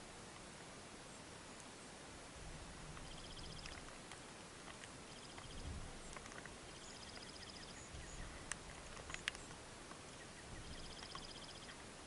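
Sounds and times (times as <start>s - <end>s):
bird chips: 3.0s - 11.9s
bird high trills: 10.1s - 11.8s.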